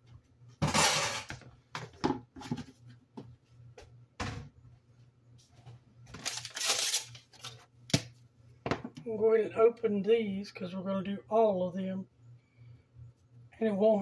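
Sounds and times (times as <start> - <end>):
paper wrapper peeled off can: 6.2 - 7.6.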